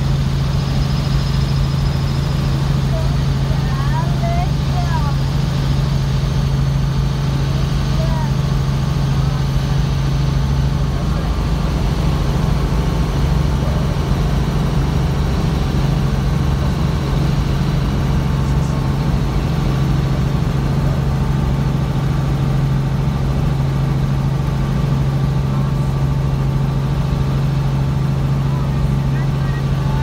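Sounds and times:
helicopter engine and rotor drone: 0:00.0 - 0:30.0.

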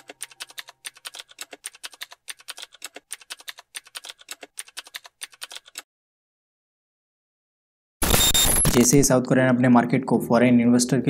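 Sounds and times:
keyboard key clicks: 0:00.0 - 0:05.8.

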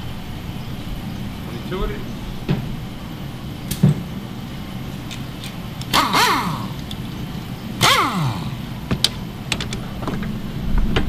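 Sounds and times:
pneumatic impact wrench bursts: 0:05.0 - 0:09.6.

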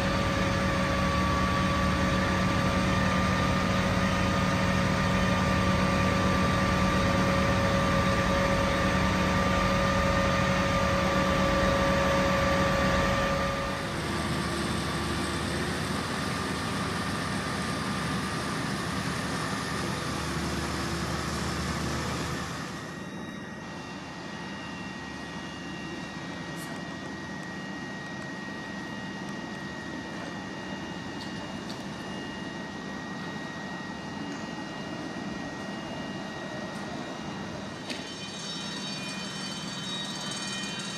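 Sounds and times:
fire engines idling: 0:00.0 - 0:23.2
faint high whine: 0:22.7 - 0:40.9.

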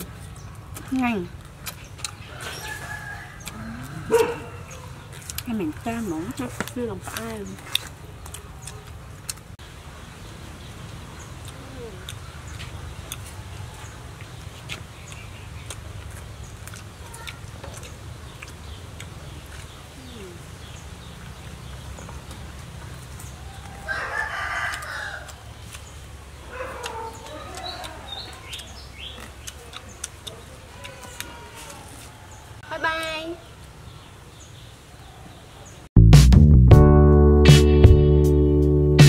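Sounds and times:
rooster crowing: 0:02.3 - 0:05.0, 0:23.4 - 0:25.5.

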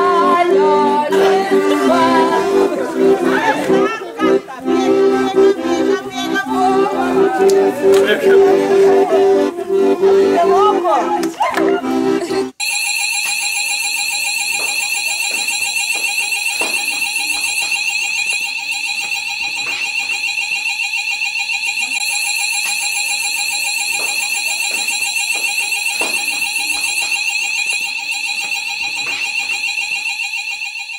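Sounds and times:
fire alarm pulsing tone: 0:12.6 - 0:30.9.

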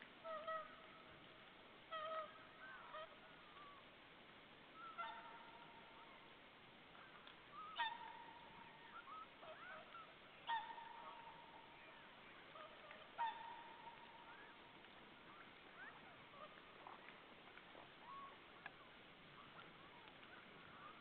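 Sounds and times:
swans honking: 0:00.2 - 0:01.1, 0:01.9 - 0:03.9, 0:04.8 - 0:06.4, 0:07.0 - 0:17.2.

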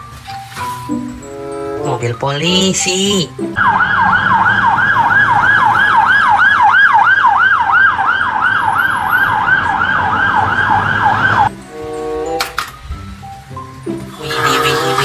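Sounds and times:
low traffic rumble: 0:01.0 - 0:15.0
siren in fast yelp: 0:03.6 - 0:11.5.

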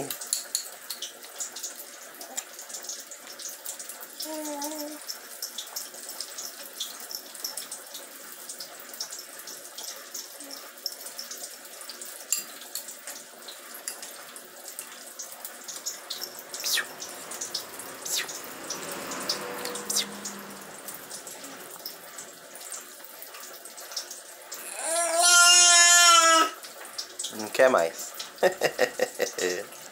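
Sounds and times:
baby eating wet clicks: 0:00.0 - 0:03.6, 0:12.2 - 0:22.3
faint steady hiss: 0:12.0 - 0:24.7.

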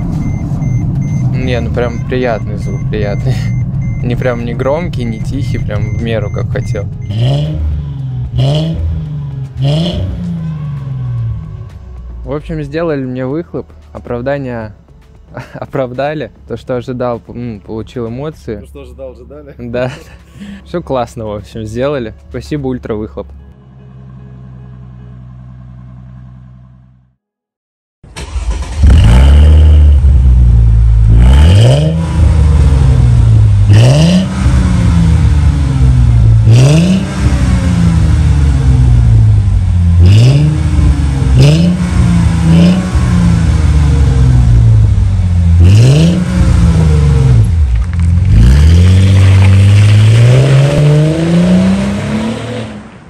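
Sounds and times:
car exhaust revving: 0:00.0 - 0:11.6, 0:28.3 - 0:53.0.

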